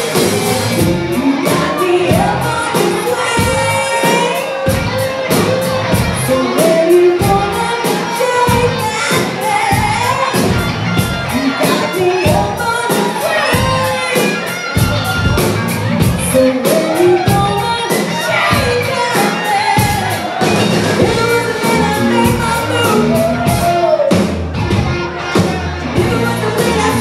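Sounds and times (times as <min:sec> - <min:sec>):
bass guitar: 0:00.0 - 0:27.0
drum beat: 0:00.0 - 0:27.0
electric guitar: 0:00.0 - 0:27.0
woman singing: 0:00.7 - 0:10.7, 0:11.3 - 0:14.4, 0:16.2 - 0:20.2, 0:21.0 - 0:23.8, 0:26.0 - 0:27.0.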